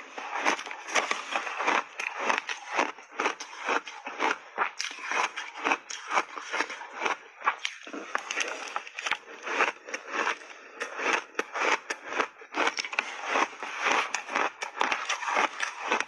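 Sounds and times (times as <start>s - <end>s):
chewing crunchy ice: 0.0s - 16.0s.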